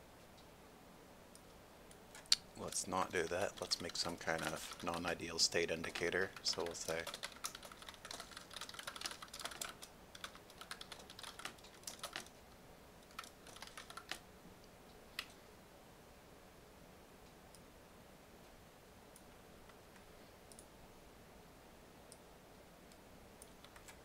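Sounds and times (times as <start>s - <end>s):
computer keyboard typing: 2.2s - 12.3s, 13.0s - 14.2s, 23.4s - 24.0s.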